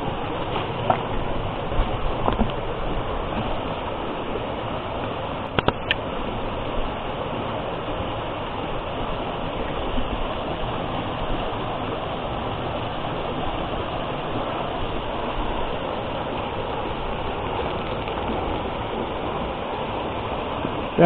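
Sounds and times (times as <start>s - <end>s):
small waterfall splashing: 0.0s - 21.0s.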